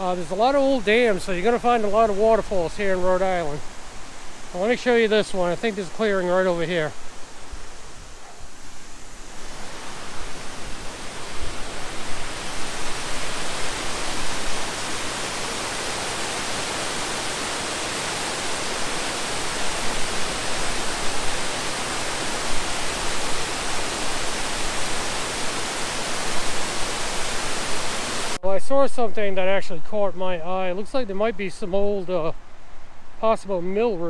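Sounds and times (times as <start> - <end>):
waterfall rushing: 0.0 - 28.5.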